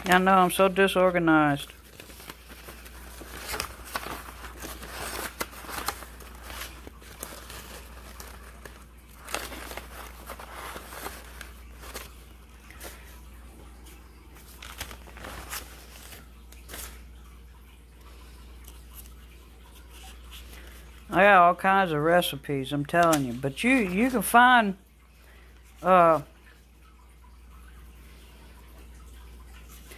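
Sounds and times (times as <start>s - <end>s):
paper rustling and crinkling: 0.0s - 17.2s, 22.9s - 24.4s.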